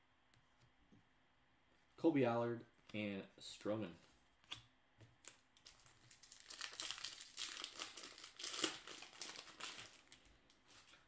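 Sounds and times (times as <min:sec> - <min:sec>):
plastic wrapper tearing and crumpling: 0:05.2 - 0:10.9.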